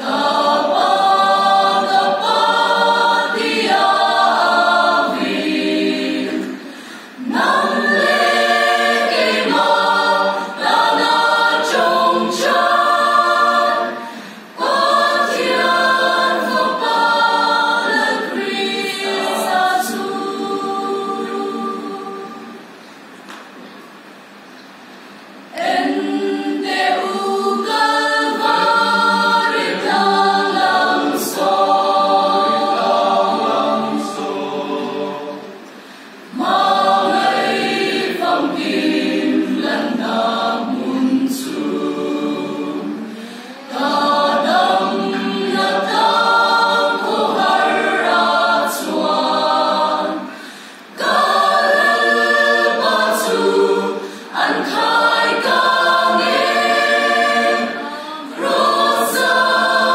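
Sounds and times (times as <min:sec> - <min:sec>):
choir singing a hymn: 0:00.0 - 0:23.1, 0:25.4 - 0:59.9.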